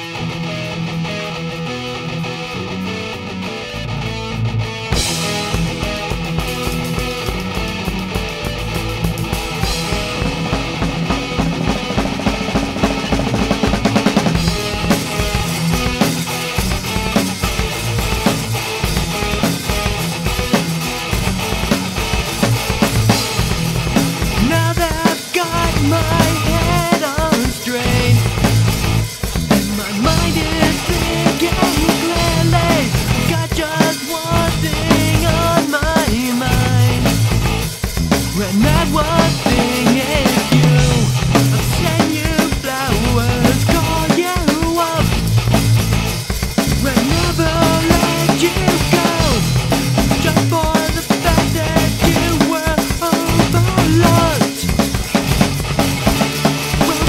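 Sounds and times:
pop punk song: 0.0 - 57.0.

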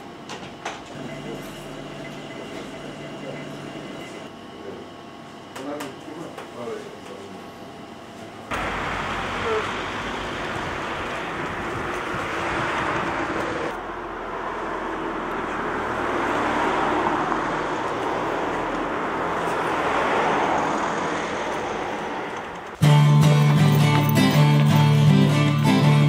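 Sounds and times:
cars passing: 8.5 - 26.0.

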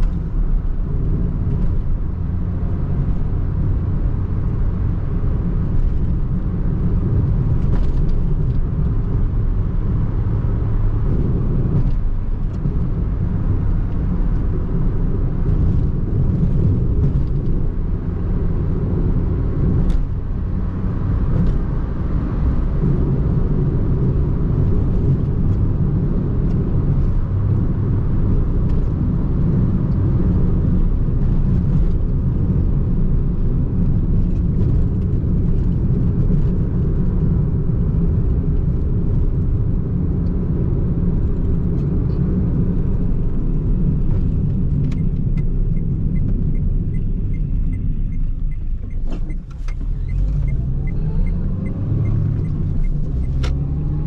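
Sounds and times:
car engine rumble from cabin: 0.0 - 54.0
road noise: 0.0 - 54.0.

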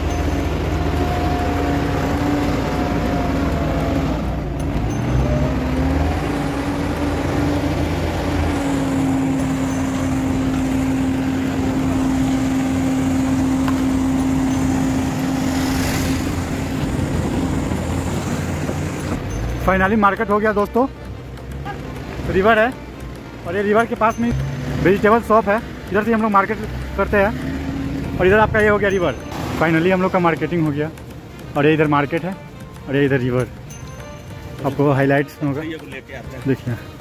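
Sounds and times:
car driving past: 0.0 - 19.3
traffic engine drone: 0.0 - 37.0.

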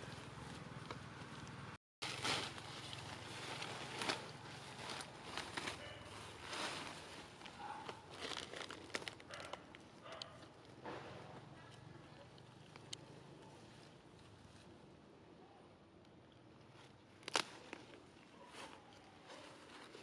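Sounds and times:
rustling leaves and grass: 0.0 - 15.6, 16.5 - 20.0.

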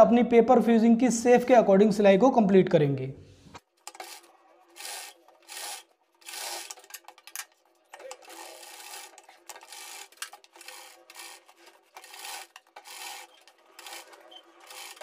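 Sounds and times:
sewing machine stitching: 3.8 - 15.0.

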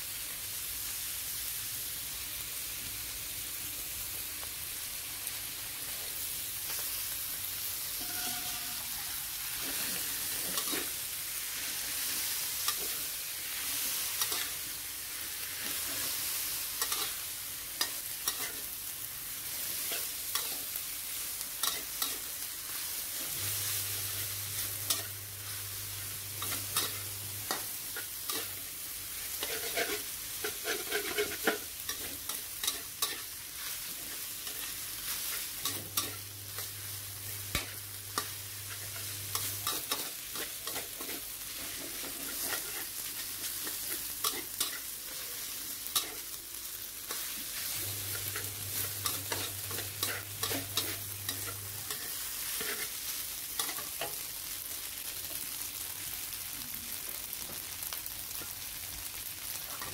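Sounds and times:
food sizzling in a wok: 0.0 - 59.9
metal spatula scraping a pan: 8.0 - 12.9, 21.6 - 46.4, 47.1 - 54.2.

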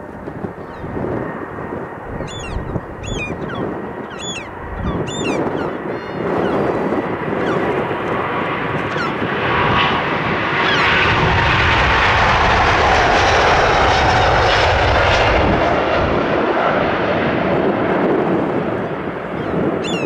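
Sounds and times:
jet engines at takeoff: 0.0 - 20.0
jet whine falling in pitch: 2.0 - 10.0, 19.3 - 20.0.

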